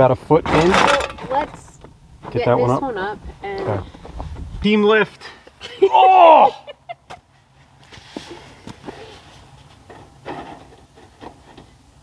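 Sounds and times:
gutter rustling: 0:00.2 - 0:04.7.

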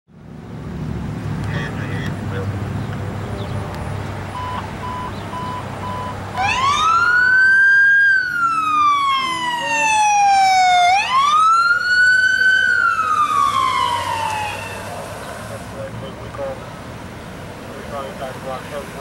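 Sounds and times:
electronic siren wailing: 0:04.4 - 0:14.8.

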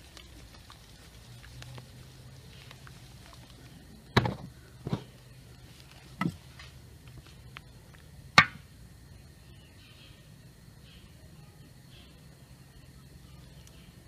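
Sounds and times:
faint low hum: 0:00.0 - 0:14.0
sharp knocks: 0:08.4 - 0:08.6.

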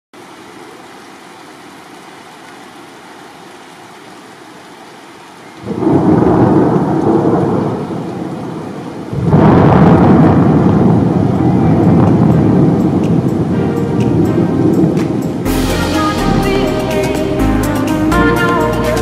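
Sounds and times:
rain hiss: 0:00.2 - 0:19.0
thunder rumbling: 0:05.6 - 0:17.6.

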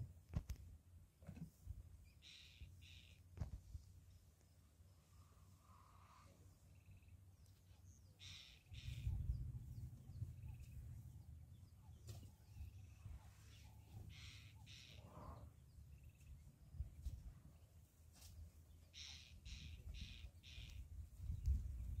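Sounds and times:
bird giving harsh calls: 0:02.2 - 0:03.2, 0:08.2 - 0:09.1, 0:14.1 - 0:15.0, 0:19.0 - 0:20.8
faint low rumble: 0:08.8 - 0:14.1.

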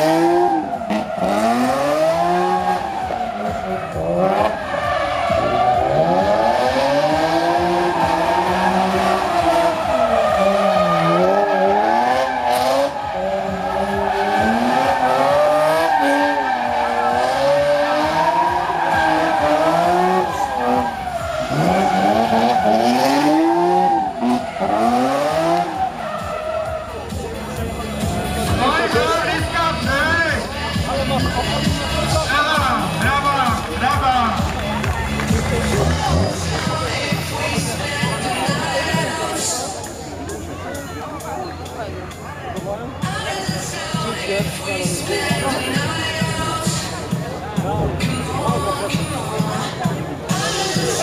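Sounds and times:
tyres squealing: 0:00.0 - 0:27.2
car engine revving: 0:00.0 - 0:40.1.

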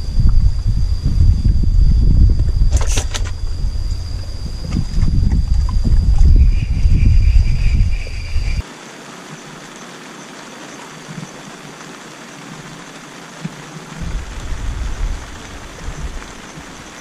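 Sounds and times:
wind buffeting microphone: 0:00.0 - 0:08.6, 0:13.8 - 0:17.0
wind over open water: 0:00.0 - 0:17.0.

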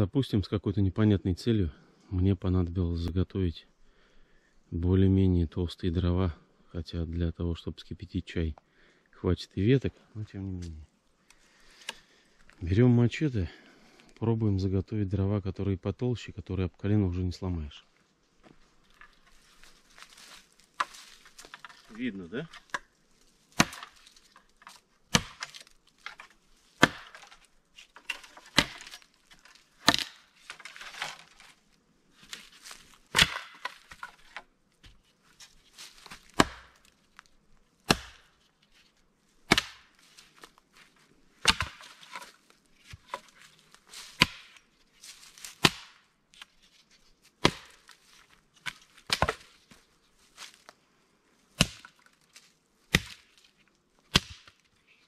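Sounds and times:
machete chopping firewood: 0:23.5 - 0:31.4, 0:32.2 - 0:34.4, 0:36.0 - 0:36.9, 0:37.8 - 0:38.4, 0:39.4 - 0:40.5, 0:41.4 - 0:42.3, 0:44.0 - 0:44.7, 0:45.4 - 0:46.1, 0:47.4 - 0:48.0, 0:48.6 - 0:49.8, 0:51.5 - 0:52.1, 0:52.9 - 0:53.4, 0:54.1 - 0:54.6.

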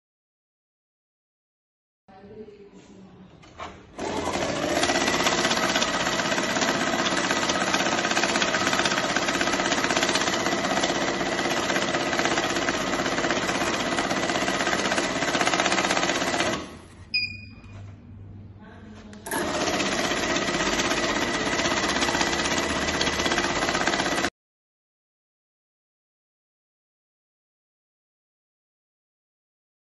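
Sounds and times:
banknote counting machine whirring: 0:04.0 - 0:16.8, 0:19.3 - 0:24.3
short high beep: 0:17.1 - 0:17.9.

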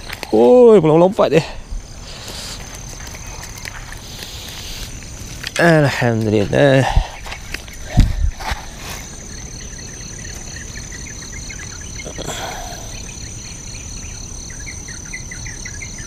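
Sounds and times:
insect chirps: 0:00.0 - 0:16.0
insects trilling: 0:00.0 - 0:16.0
soft rustle: 0:01.8 - 0:09.3.

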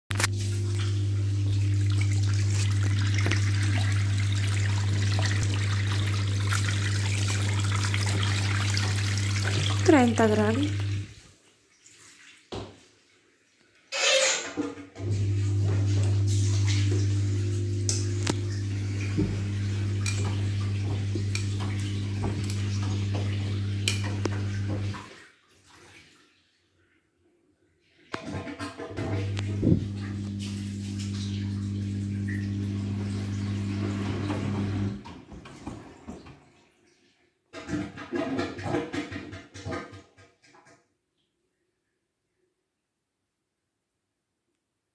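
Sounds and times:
drain pump humming: 0:00.1 - 0:11.2, 0:15.0 - 0:25.1, 0:29.0 - 0:35.1
water gushing into sink: 0:00.1 - 0:12.8, 0:15.0 - 0:26.3, 0:28.1 - 0:36.6.

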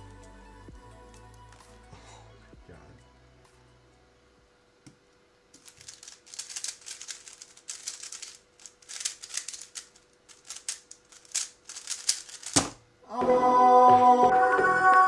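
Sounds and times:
puzzle cube clicking: 0:05.6 - 0:12.7.

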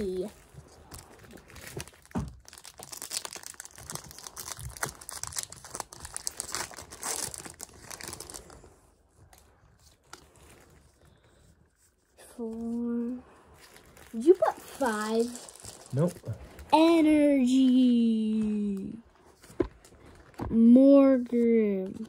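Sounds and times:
foil wrapper crinkling: 0:00.0 - 0:08.6, 0:13.6 - 0:16.7.

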